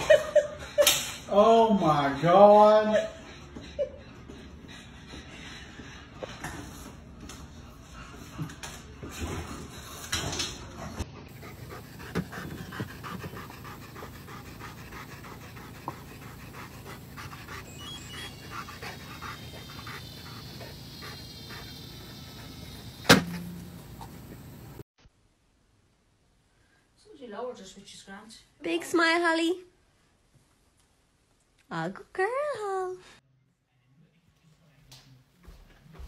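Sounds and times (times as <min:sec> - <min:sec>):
dog panting: 0:00.1 - 0:23.0
ball launcher crack: 0:23.0 - 0:23.6.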